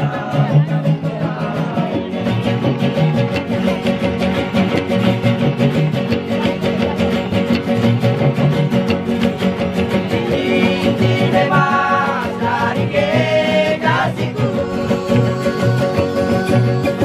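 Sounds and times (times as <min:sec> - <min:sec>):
men singing: 0:00.0 - 0:02.4, 0:10.1 - 0:17.0
guitars and ukuleles strumming: 0:00.0 - 0:17.0.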